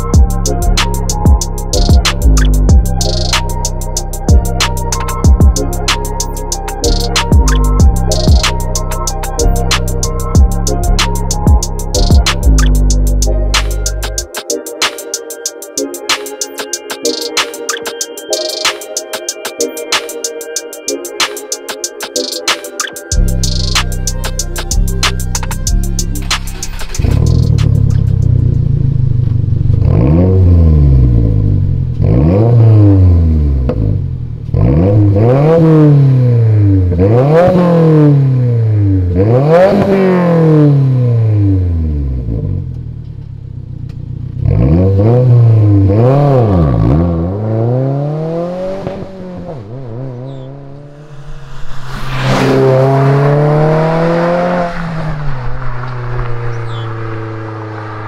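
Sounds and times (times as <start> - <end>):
car engine revving: 23.5 - 58.0.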